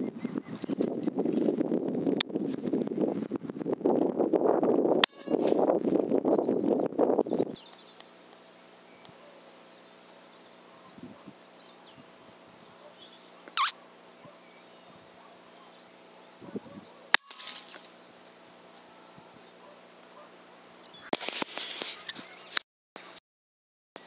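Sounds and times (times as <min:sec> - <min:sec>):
rifle shot: 0:17.1 - 0:17.9.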